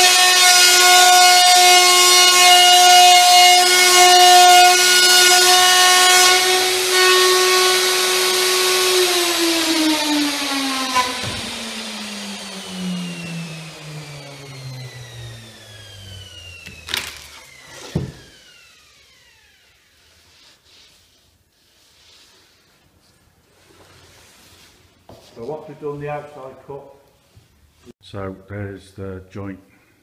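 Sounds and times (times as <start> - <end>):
router motor whine: 0.0 - 19.8
router cutting board: 0.0 - 20.3.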